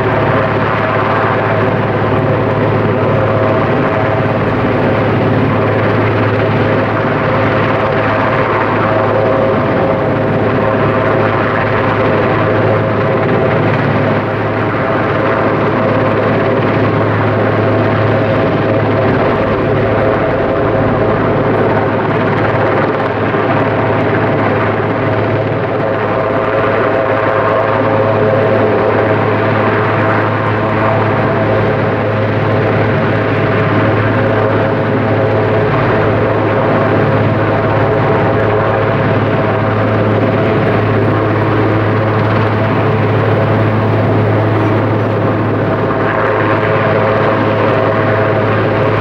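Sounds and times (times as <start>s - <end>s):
helicopter hovering: 0.0s - 49.0s.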